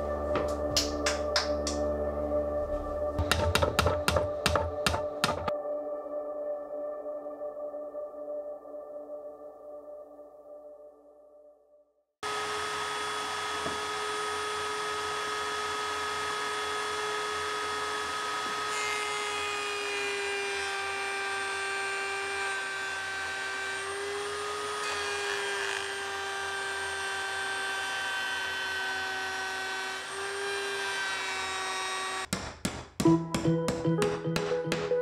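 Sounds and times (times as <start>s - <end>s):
router motor whine: 12.2s - 32.3s.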